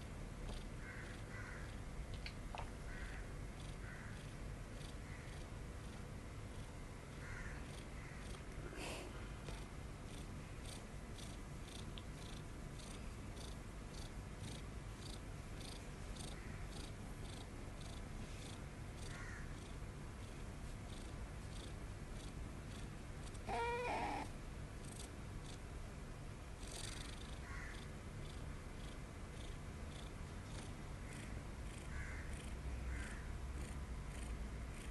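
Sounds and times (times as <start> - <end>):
kitten purring: 3.0 - 6.8, 7.6 - 25.7, 26.6 - 34.9
kitten meowing: 23.5 - 24.3.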